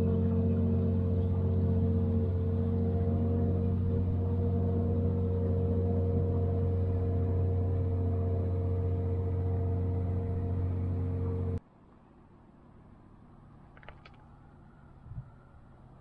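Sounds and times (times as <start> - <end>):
boat engine droning: 0.0 - 11.6.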